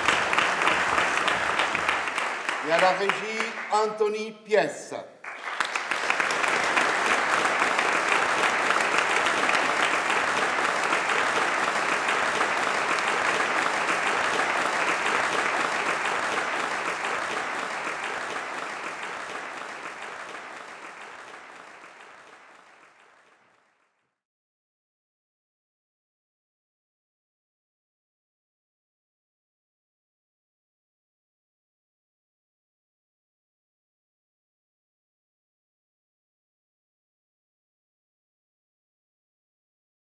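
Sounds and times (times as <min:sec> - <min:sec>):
audience applauding: 0:00.0 - 0:24.0.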